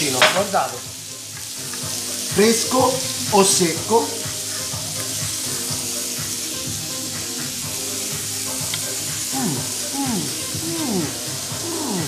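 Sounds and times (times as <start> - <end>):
meat sizzling in a pan: 0.0 - 12.0
music playing: 0.0 - 12.0.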